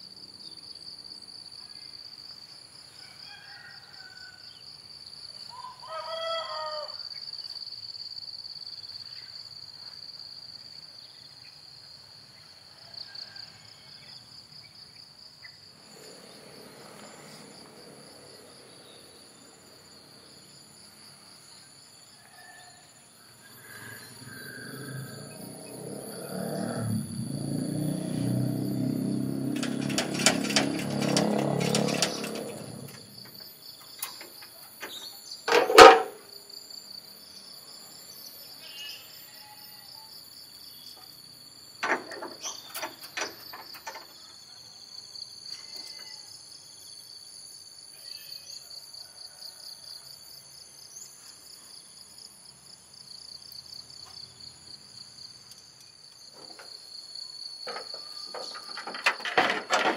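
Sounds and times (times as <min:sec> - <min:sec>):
insect drone: 0:00.0 - 0:59.9
truck engine running: 0:28.0 - 0:33.4.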